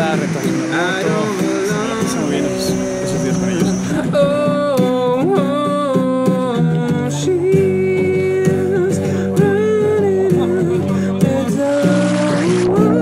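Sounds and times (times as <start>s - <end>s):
acoustic guitar chords: 0.0s - 13.0s
person singing slow melody: 0.3s - 13.0s.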